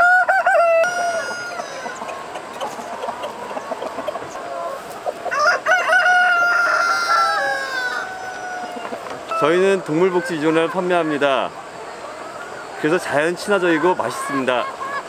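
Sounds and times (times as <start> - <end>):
rooster crowing: 0.0 - 2.2, 5.2 - 10.6
hens clucking: 0.0 - 15.0.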